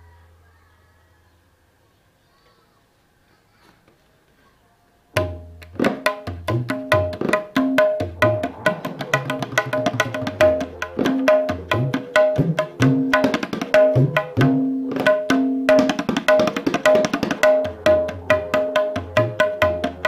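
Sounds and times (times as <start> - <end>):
hand drums played fast: 5.2 - 20.0.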